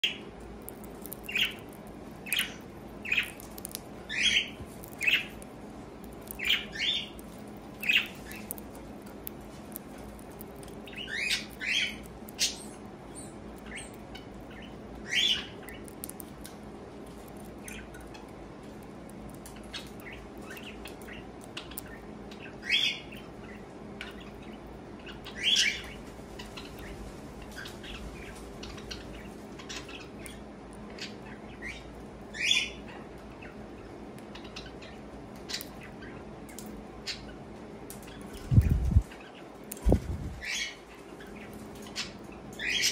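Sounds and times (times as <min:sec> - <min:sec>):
seeds cracking in beak: 0:00.6 - 0:12.6, 0:15.6 - 0:16.6
cockatiel chirping: 0:01.2 - 0:05.4, 0:06.3 - 0:07.2, 0:07.8 - 0:08.6, 0:10.8 - 0:15.9.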